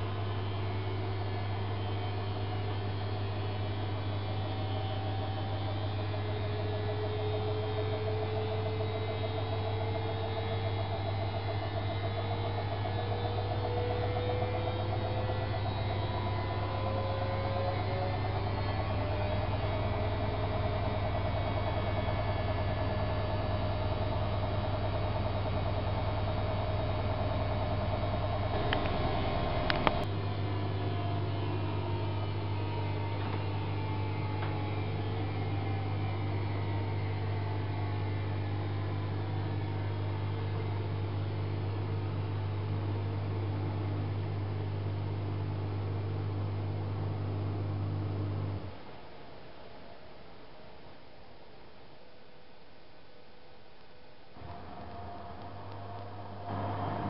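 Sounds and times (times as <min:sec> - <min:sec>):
washing machine humming and whining: 0:00.0 - 0:53.1, 0:54.0 - 0:57.0.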